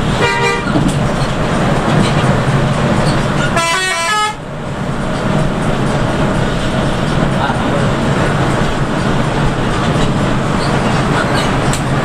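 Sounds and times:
bus engine and road noise: 0.0 - 12.0
multi-note bus horn: 0.1 - 0.8, 3.4 - 4.5.

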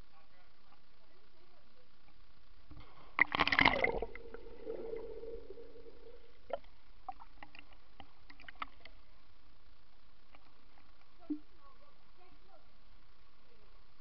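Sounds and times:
muffled underwater bubbling: 3.2 - 7.4.

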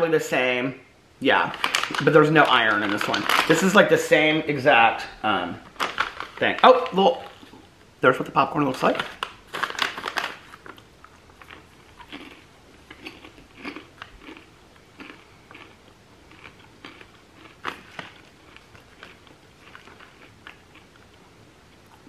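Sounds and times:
person chewing crunchy popcorn: 9.4 - 22.0.

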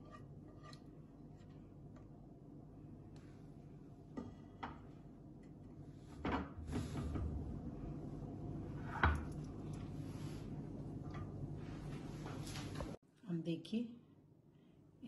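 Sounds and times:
spatula scraping and tapping a pan: 0.0 - 2.1
low steady hum: 0.0 - 15.0.

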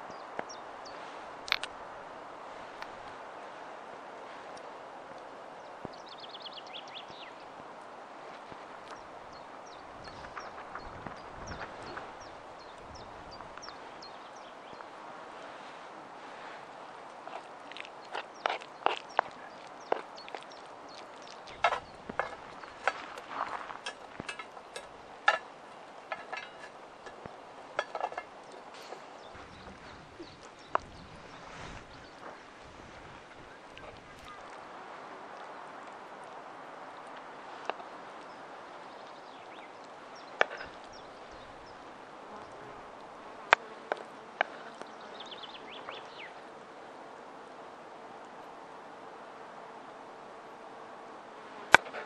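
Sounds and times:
bird chirping: 0.0 - 1.8, 5.6 - 7.5, 8.4 - 15.7, 17.3 - 34.7, 37.8 - 42.8, 44.4 - 46.4
outdoor background noise: 0.0 - 52.0.

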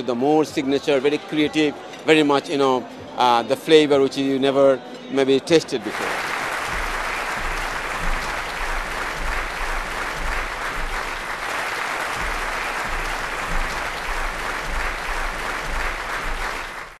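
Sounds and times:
large audience applauding: 5.8 - 17.0.

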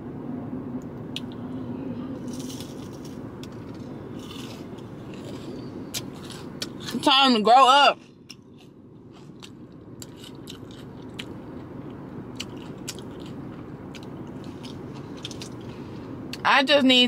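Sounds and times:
steady low rumble: 0.0 - 17.0
person chewing food: 2.2 - 7.0, 8.0 - 16.0
sharp crunches and clicks: 8.0 - 11.4, 12.3 - 15.7.

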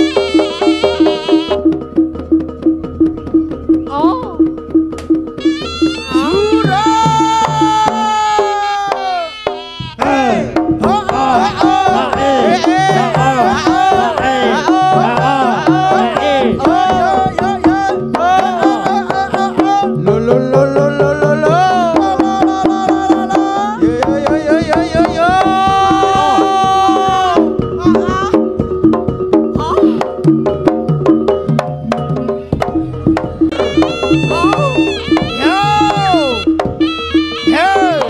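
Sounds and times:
hand drums beating: 0.0 - 38.0
wavering melodic line: 25.8 - 38.0.

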